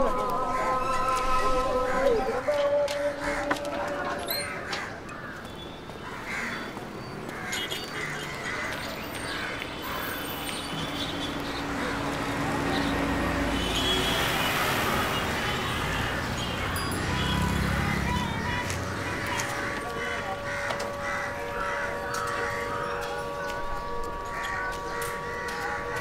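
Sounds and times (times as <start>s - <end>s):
crows cawing: 1.9s - 10.4s, 15.9s - 26.0s
low traffic rumble: 8.4s - 26.0s.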